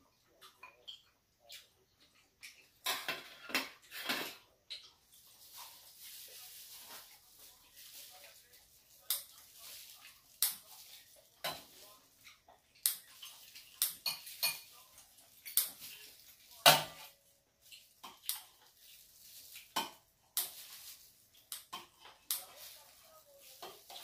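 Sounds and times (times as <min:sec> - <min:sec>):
metal utensils clinking on steel bowl: 0:02.8 - 0:04.4, 0:13.1 - 0:20.8, 0:21.6 - 0:24.0.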